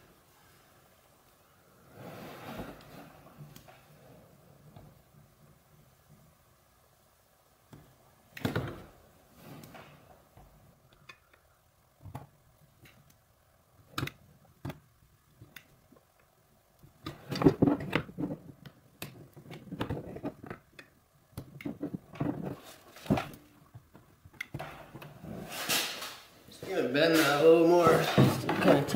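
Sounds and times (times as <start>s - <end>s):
plastic scraping and rustling: 16.8s - 28.9s.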